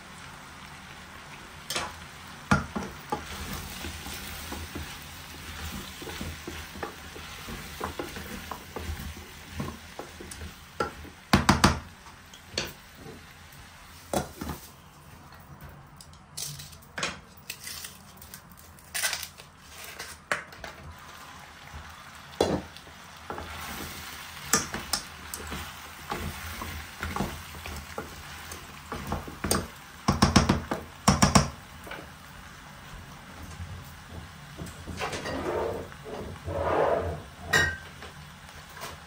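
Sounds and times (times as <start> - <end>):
food sizzling in a pot: 0.0 - 14.9, 20.7 - 39.0
glass lid clinking: 37.5 - 37.8.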